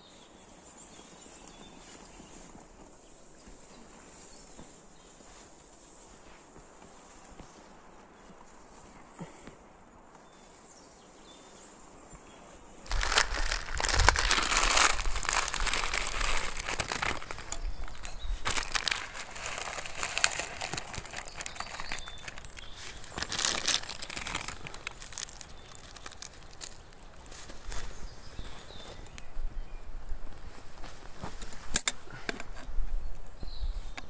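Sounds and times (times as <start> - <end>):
dense rustling and crackling: 12.8 - 29.4, 30.2 - 34.0.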